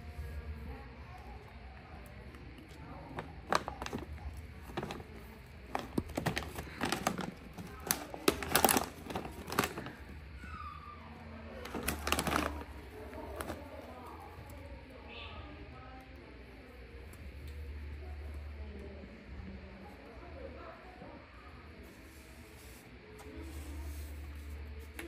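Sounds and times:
package crinkling: 3.1 - 10.2, 11.6 - 13.8.

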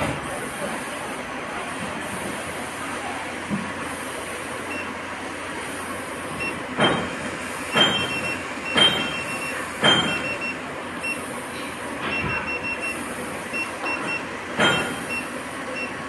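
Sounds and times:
short electronic beeps: 7.7 - 11.2, 12.1 - 16.0.

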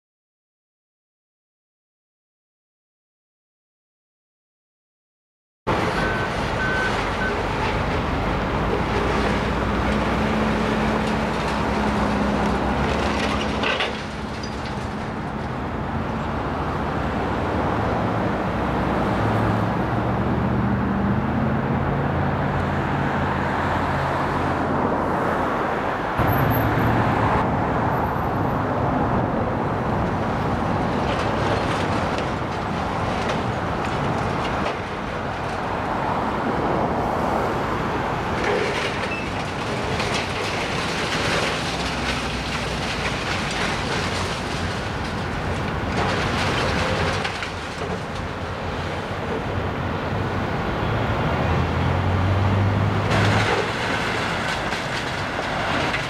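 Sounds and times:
building debris crunching: 5.7 - 19.7, 29.8 - 37.1, 38.1 - 50.6, 51.8 - 56.0
excavator diesel engine under load: 5.7 - 20.4, 37.8 - 56.0.

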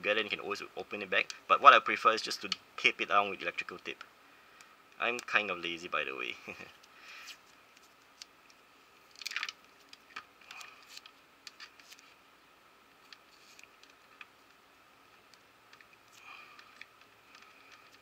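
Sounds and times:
electrical tape peeling and crackling: 7.2 - 12.2, 12.9 - 18.0.

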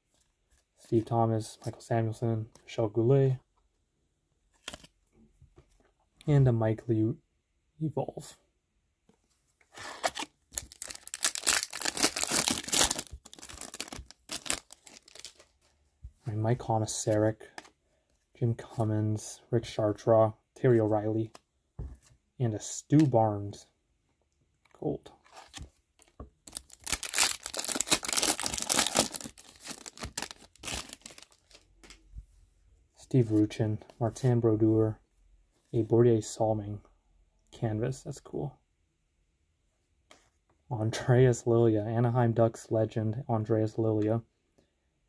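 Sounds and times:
wrapper tearing and crinkling: 9.8 - 15.5, 26.5 - 31.6.

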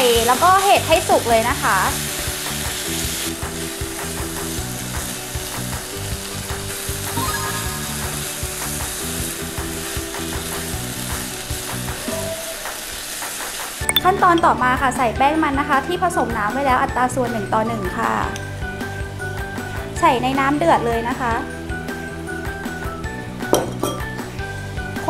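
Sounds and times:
food sizzling in a frying pan: 0.0 - 20.0.

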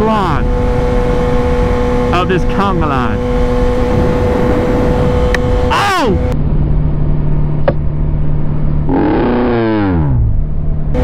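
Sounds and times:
motorcycle engine running: 0.0 - 11.0
wind noise: 0.0 - 11.0.

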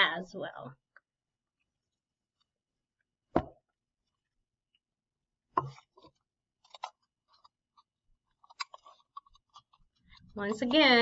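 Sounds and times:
plastic and paper crinkling clicks: 6.6 - 11.0.

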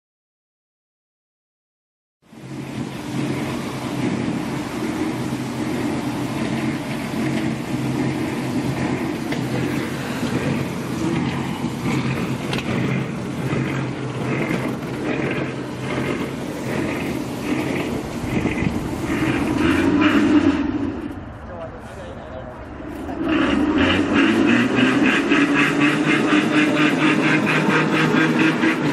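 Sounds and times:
engine humming: 2.2 - 28.9
pulsing sound: 8.8 - 28.8.

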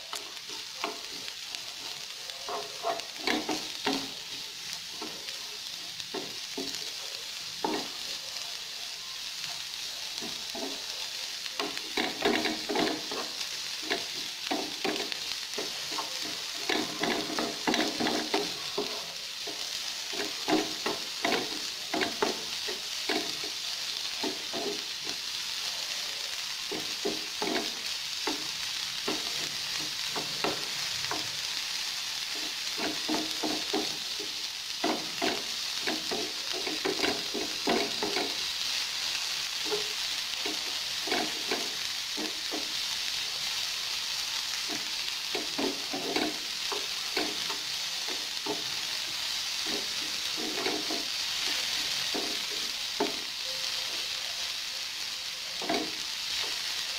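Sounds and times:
onion sizzling in frying pan: 0.0 - 56.9
wooden spatula scraping pan: 0.2 - 7.0, 11.6 - 25.4, 26.7 - 31.6, 32.2 - 38.6, 39.6 - 42.8, 44.6 - 53.3.

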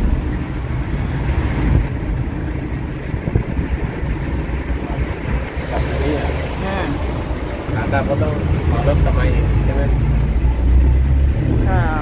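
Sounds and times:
wind noise on microphone: 0.0 - 5.6
vehicle low rumble: 0.0 - 12.0.

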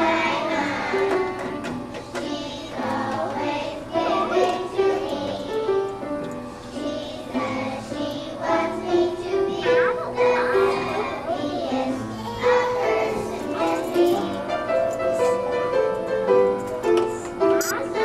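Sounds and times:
children singing in unison: 0.0 - 5.8, 6.7 - 15.2.

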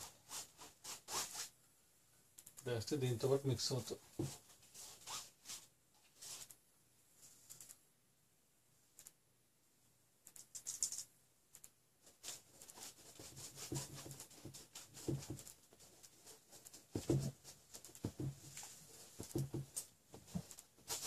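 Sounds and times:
paintbrush scratching on canvas: 0.0 - 1.5, 12.1 - 19.5.

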